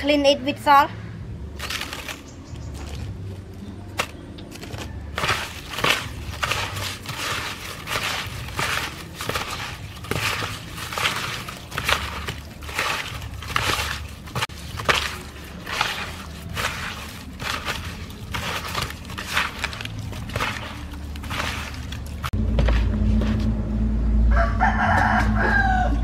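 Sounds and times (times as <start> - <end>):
hands scrubbing eels with salt: 4.0 - 23.4.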